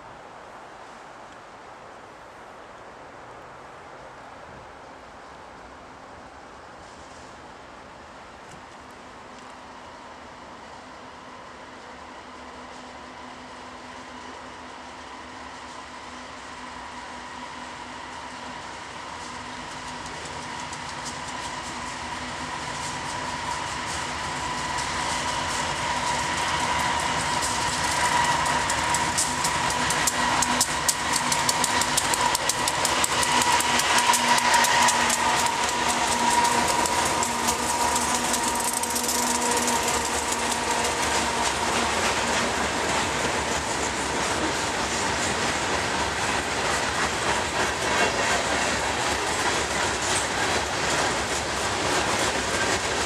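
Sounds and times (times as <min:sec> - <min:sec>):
diesel locomotive engines: 0:00.0 - 0:53.0
freight car wheels clacking: 0:25.4 - 0:43.6.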